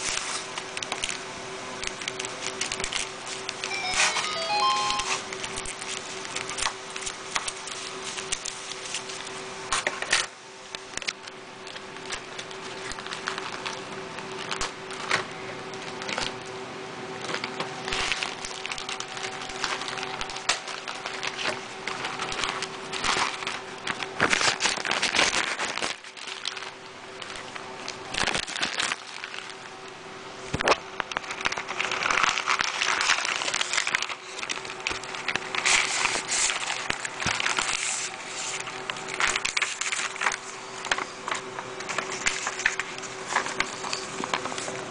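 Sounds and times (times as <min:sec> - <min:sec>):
plastic bag rustling and crinkling: 0:01.8 - 0:10.3, 0:11.0 - 0:16.4, 0:17.2 - 0:29.7, 0:30.5 - 0:44.9.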